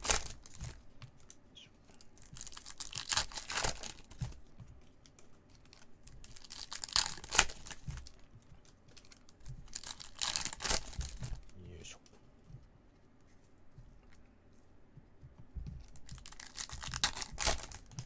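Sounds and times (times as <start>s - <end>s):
card pack wrappers crinkling: 0.0s - 11.6s, 15.9s - 18.0s.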